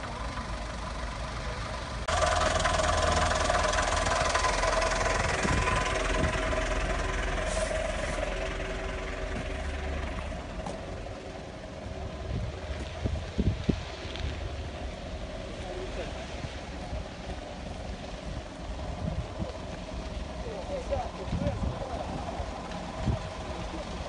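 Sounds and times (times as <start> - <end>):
fire truck engine running: 0.0 - 24.0
steady whine: 2.0 - 13.5.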